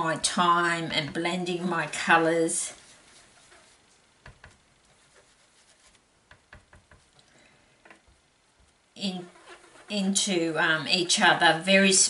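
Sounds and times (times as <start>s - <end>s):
sponge tapping on cardstock: 6.3s - 7.1s.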